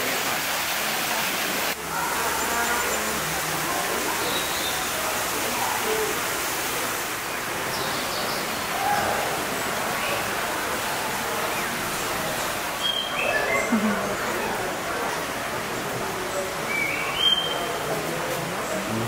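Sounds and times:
running water rushing: 0.0 - 19.0
faint high bird calls: 12.8 - 13.8, 16.7 - 17.8.

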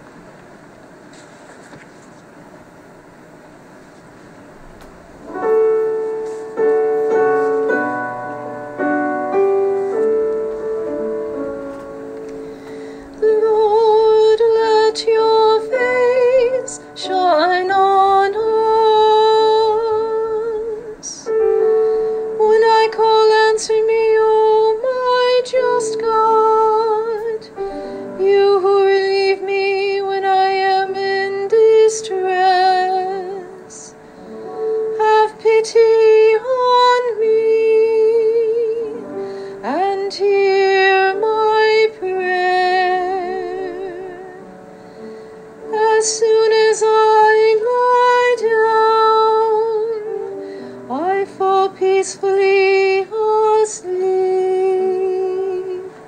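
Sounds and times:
piano: 0.0 - 56.0
woman singing: 13.2 - 21.4, 22.3 - 34.0, 34.9 - 44.6, 45.6 - 56.0.

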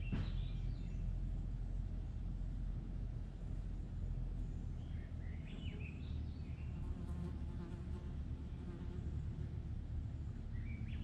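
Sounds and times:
small birds chirping: 0.0 - 1.2, 4.3 - 7.0, 10.2 - 11.0
steady low hum: 0.0 - 11.0.

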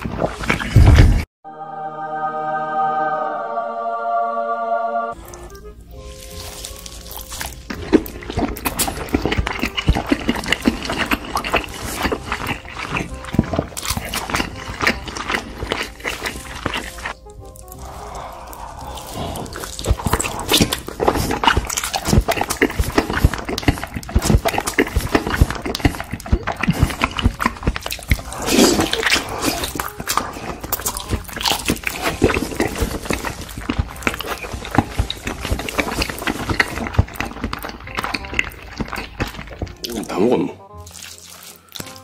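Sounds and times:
person chewing: 0.0 - 1.3, 5.1 - 42.0.

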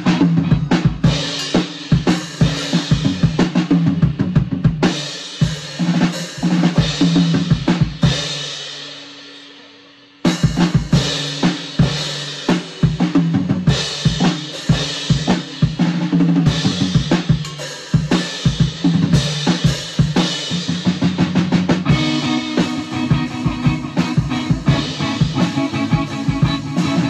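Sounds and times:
drum kit groove: 0.0 - 27.0
electric guitar low notes: 21.8 - 27.0.

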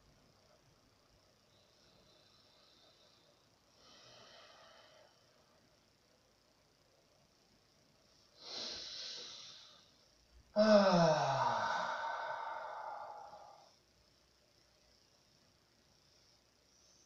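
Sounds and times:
man breathing deeply: 1.7 - 5.4, 8.4 - 9.9, 10.6 - 13.8
man sighing: 10.6 - 13.7.

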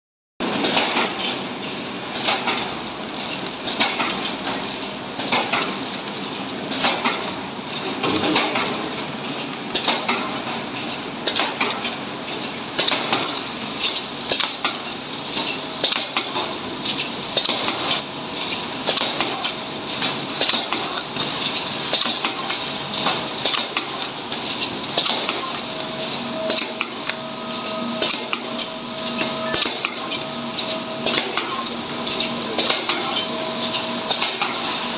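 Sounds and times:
packaging machine clatter: 0.4 - 34.9
sharp machine clack: 8.0 - 10.3, 11.2 - 34.9.

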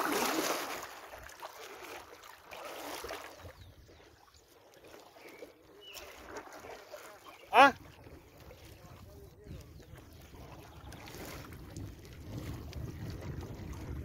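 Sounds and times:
paddle strokes swishing through water: 0.0 - 14.0.

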